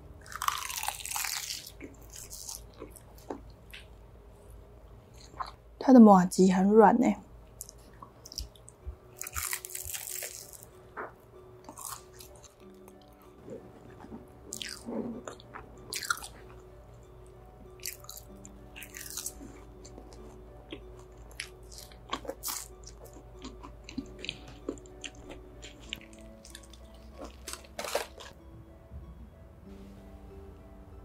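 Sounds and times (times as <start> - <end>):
soft background music: 0.0 - 31.0
crunching bites: 17.8 - 19.4, 21.3 - 28.3
wet chewing: 17.8 - 28.4
crispy chicken skin tearing: 27.2 - 28.3.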